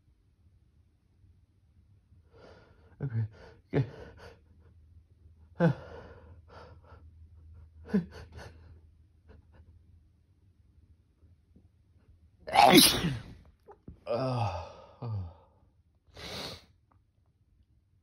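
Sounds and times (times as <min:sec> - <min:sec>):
person sneezing: 0:12.5 - 0:13.4.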